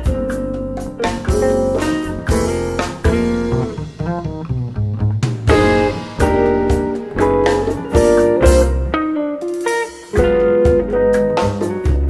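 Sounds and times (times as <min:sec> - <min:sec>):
instrumental rock band: 0:00.0 - 0:12.0
heavy low hit: 0:01.2 - 0:08.9.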